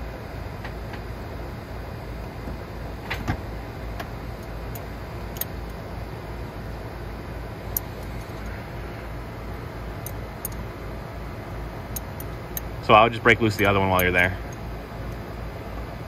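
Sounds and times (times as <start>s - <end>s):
wrench clicking on metal bolts: 12.0s - 12.7s, 13.4s - 14.6s.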